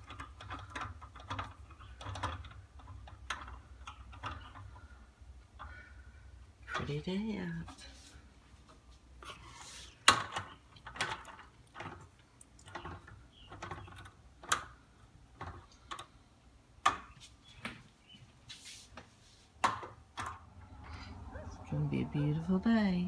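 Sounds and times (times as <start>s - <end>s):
light clicks and knocks: 10.0s - 17.9s.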